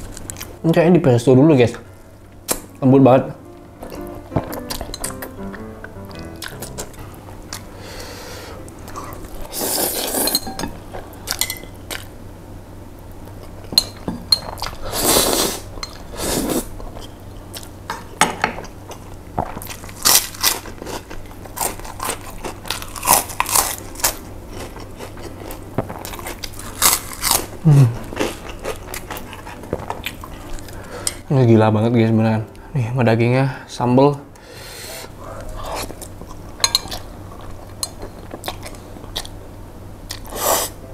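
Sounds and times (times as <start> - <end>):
crackers crunching: 3.5 - 10.4, 18.8 - 31.1.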